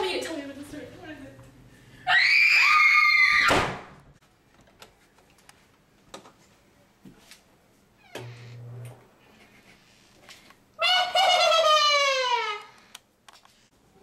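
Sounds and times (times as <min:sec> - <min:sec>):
high scream: 0:02.1 - 0:03.8
door slamming: 0:03.4 - 0:04.0.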